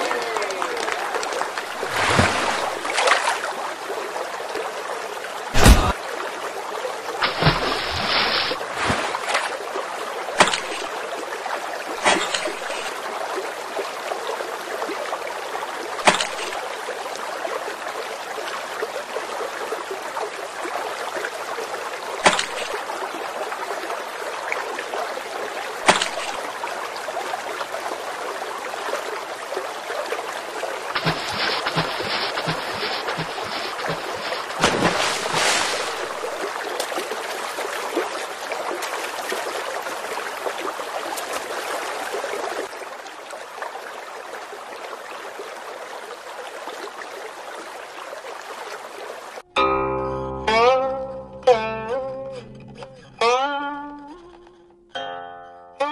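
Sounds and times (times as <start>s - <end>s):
water rushing and splashing: 0.0s - 49.4s.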